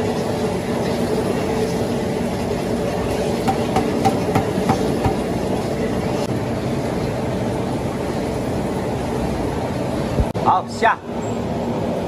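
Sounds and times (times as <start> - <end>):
industrial mixer churning paste: 1.4 - 6.2.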